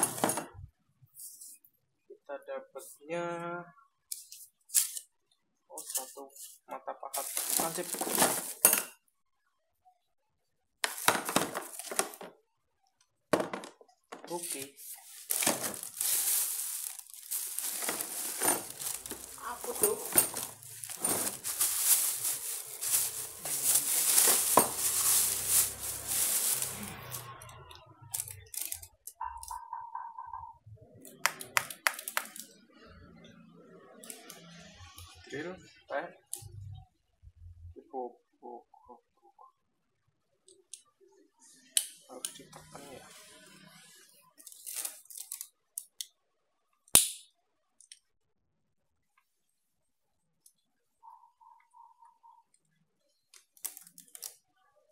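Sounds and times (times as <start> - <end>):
plastic bag crinkling: 7.2 - 8.6, 14.4 - 27.3
plastic case scraping and rustling: 14.8 - 26.7
sharp snap: 47.0 - 47.2.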